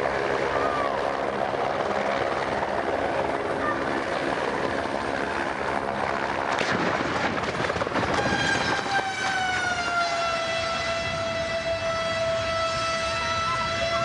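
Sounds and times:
helicopter crash rushing din: 0:00.0 - 0:10.3.

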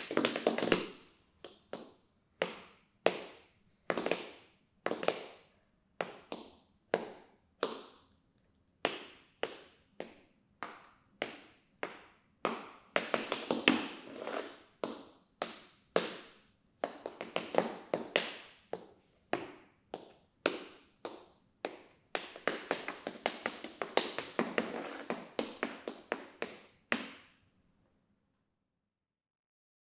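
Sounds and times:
tap shoes on hard floor: 0:00.0 - 0:05.4, 0:06.0 - 0:08.0, 0:08.8 - 0:27.3.

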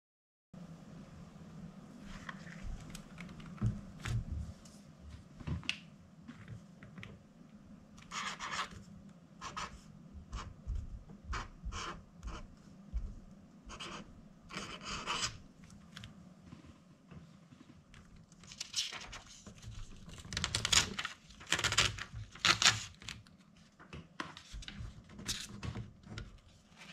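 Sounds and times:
sketchbook rustling and bumps: 0:02.0 - 0:04.7
marker scratching on paper: 0:08.0 - 0:08.8, 0:09.4 - 0:15.4.

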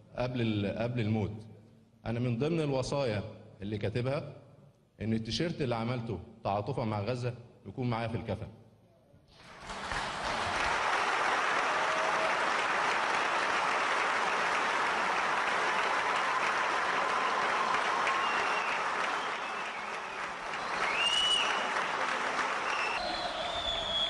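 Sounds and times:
large audience applauding: 0:09.4 - 0:24.0.

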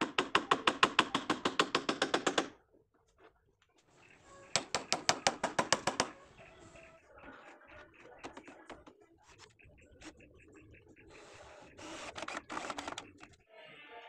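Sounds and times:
hammering on wooden planks: 0:00.0 - 0:02.6, 0:04.4 - 0:06.2.

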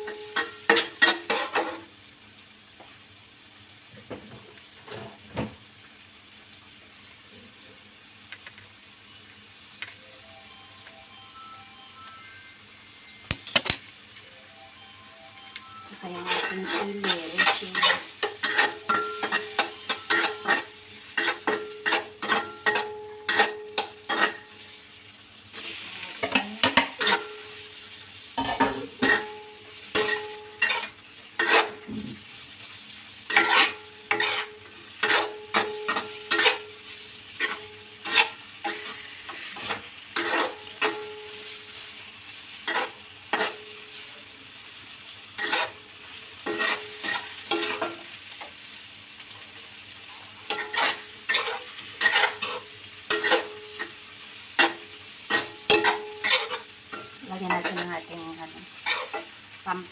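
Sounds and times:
frying sizzle: 0:00.0 - 0:59.9
metal spatula scraping a wok: 0:00.1 - 0:01.9, 0:16.1 - 0:24.6, 0:25.6 - 0:27.6, 0:28.4 - 0:32.2, 0:33.3 - 0:42.0, 0:42.6 - 0:44.1, 0:45.4 - 0:48.1, 0:50.0 - 0:59.3.

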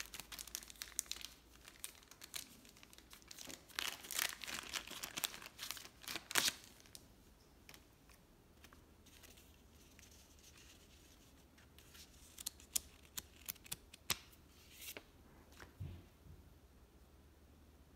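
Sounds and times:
plastic wrapping crinkling: 0:00.0 - 0:07.0.

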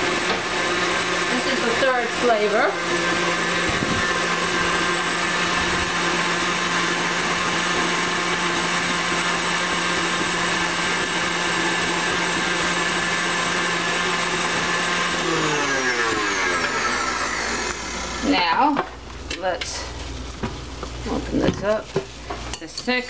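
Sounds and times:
stand mixer whisking: 0:00.0 - 0:18.6
mixer motor winding down: 0:00.0 - 0:18.7.

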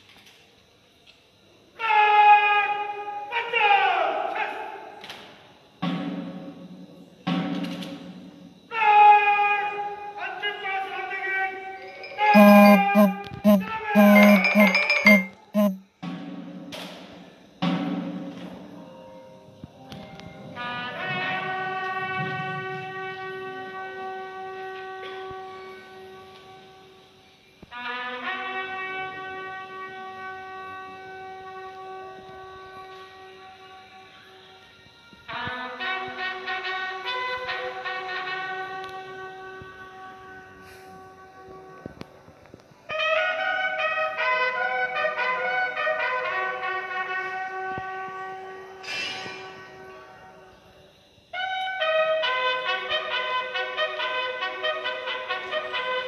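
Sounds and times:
brass instruments playing melody: 0:12.4 - 0:15.8
horn long held notes: 0:12.4 - 0:15.8.

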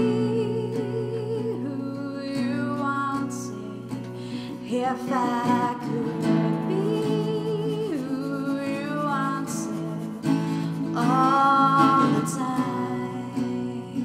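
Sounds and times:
slow song with guitar: 0:00.0 - 0:14.0.

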